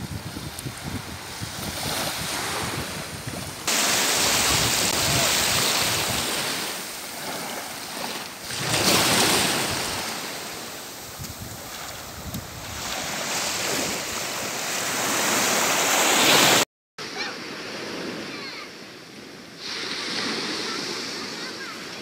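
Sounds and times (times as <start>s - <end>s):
wind buffeting microphone: 0.0s - 6.8s, 8.6s - 14.4s
waves washing up a beach: 0.0s - 22.0s.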